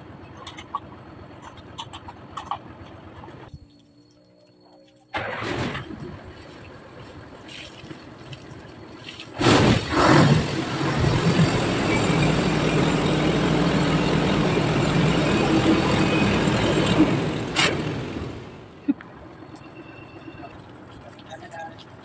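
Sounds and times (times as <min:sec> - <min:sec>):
water blasting from exhaust pipe: 0:07.4 - 0:18.5
truck engine running hard: 0:09.4 - 0:21.0.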